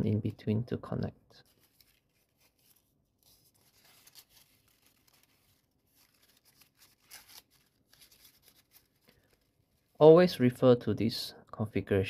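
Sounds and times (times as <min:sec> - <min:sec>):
paper rustling and crinkling: 0:01.4 - 0:10.0.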